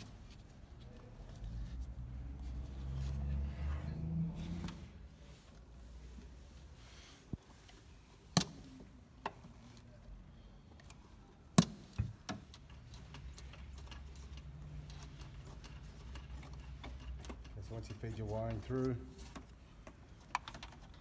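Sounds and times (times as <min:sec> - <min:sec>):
light ticking and rustling: 0:12.5 - 0:21.0.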